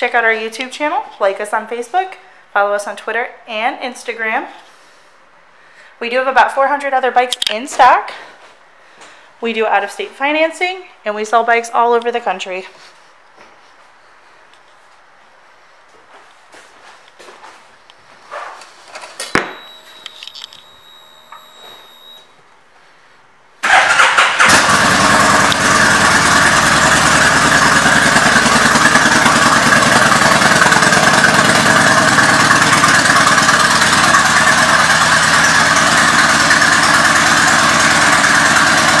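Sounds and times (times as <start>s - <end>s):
faint high whine: 19.2s - 22.5s
motorcycle engine idling: 23.9s - 39.0s.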